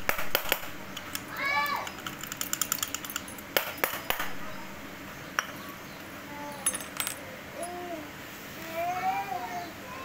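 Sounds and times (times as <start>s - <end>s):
keys clinking on stone floor: 1.8s - 3.6s, 6.5s - 7.8s.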